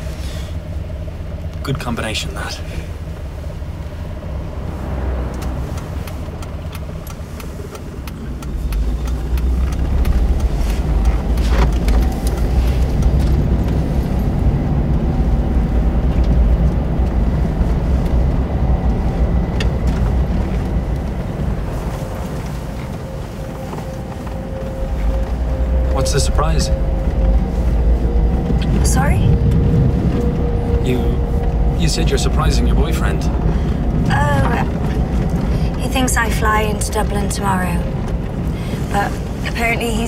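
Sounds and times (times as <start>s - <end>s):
car engine and tyre rumble: 0.0s - 40.0s.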